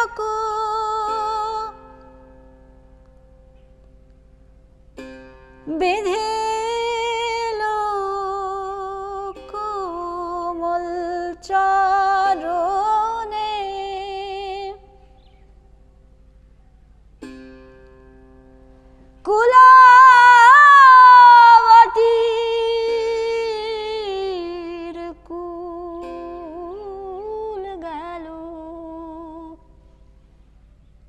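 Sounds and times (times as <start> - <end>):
woman singing: 0.0 - 2.0, 5.6 - 15.0, 19.2 - 29.7
plucked one-stringed lute: 0.0 - 30.5.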